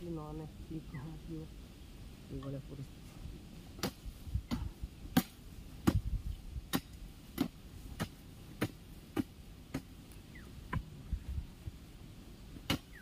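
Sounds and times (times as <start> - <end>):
hand hoe chopping into dry soil: 3.7 - 10.9, 12.6 - 13.0.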